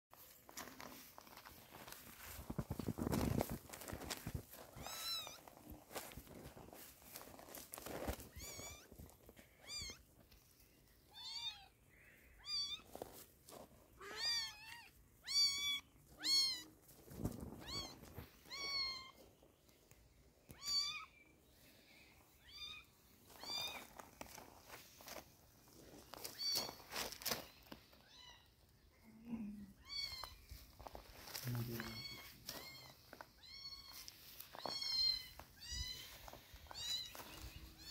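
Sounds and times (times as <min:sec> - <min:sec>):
kittens meowing: 0:04.7 - 0:05.4, 0:08.3 - 0:10.1, 0:11.1 - 0:13.0, 0:14.0 - 0:16.8, 0:17.6 - 0:19.3, 0:20.5 - 0:21.2, 0:22.3 - 0:24.0, 0:28.0 - 0:30.7, 0:31.4 - 0:37.9.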